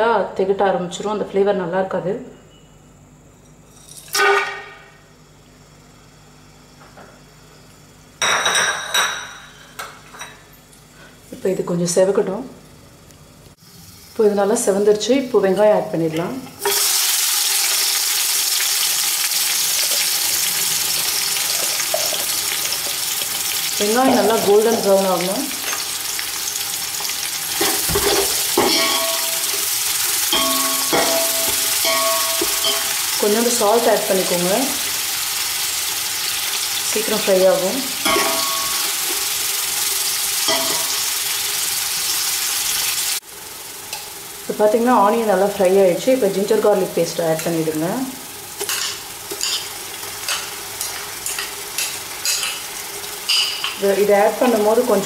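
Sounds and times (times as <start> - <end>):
onions sizzling in hot oil: 13.5 - 55.0
spoon knocking against metal pot: 30.3 - 32.9.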